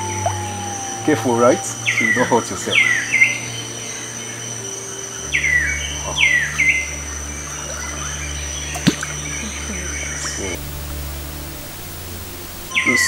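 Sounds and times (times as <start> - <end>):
bird calling: 0.0 - 3.5, 9.2 - 13.0
high insect drone: 0.0 - 13.0
low steady hum: 7.0 - 13.0.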